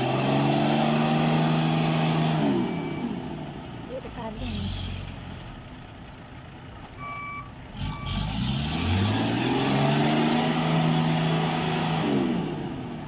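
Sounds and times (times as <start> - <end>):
heavy truck engine revving: 0.0 - 13.0
short high beeps: 7.0 - 8.2.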